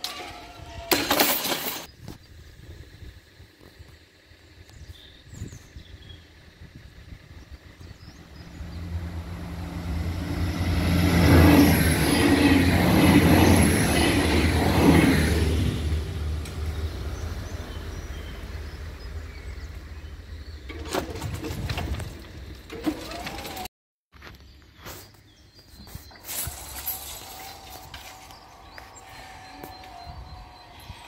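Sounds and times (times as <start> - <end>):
train passing: 8.0 - 20.9, 26.6 - 31.0.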